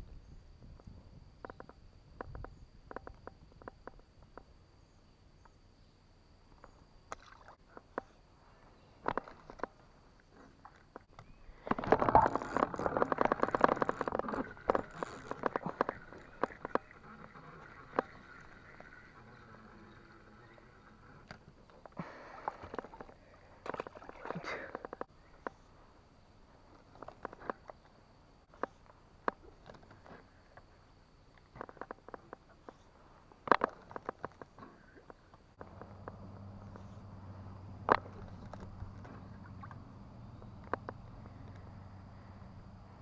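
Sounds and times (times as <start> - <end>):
clicks and knocks in a boat: 0.7 - 4.5, 8.9 - 19.2, 21.2 - 25.7, 26.6 - 30.7, 31.3 - 41.8
sharp clicks and light knocks: 31.3 - 37.0.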